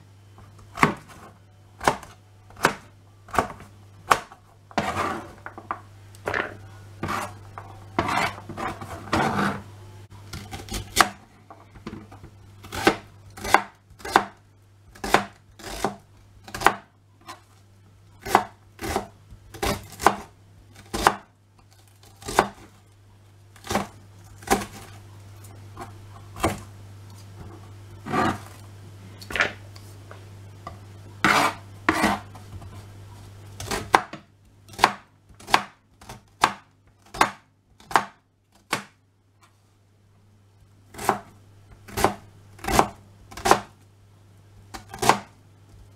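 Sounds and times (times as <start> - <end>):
low hum: 1.2 - 10.4
knife chopping on cutting board: 1.8 - 5.6, 6.3 - 9.6, 12.7 - 17.4, 18.2 - 21.3, 22.2 - 22.6, 31.2 - 32.4, 33.6 - 39.0, 41.9 - 43.7.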